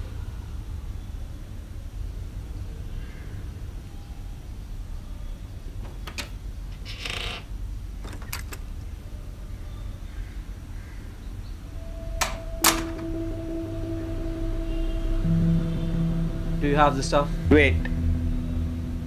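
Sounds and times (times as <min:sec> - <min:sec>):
metal latch clicks: 0:05.8 - 0:07.2, 0:08.0 - 0:08.8, 0:12.2 - 0:13.0
door scraping creak: 0:05.9 - 0:08.6
low steady musical tone: 0:11.5 - 0:19.0.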